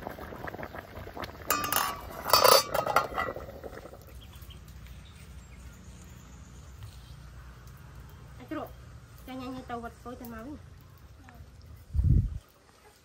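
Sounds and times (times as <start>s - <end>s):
dishes and utensils clinking: 1.5s - 3.5s.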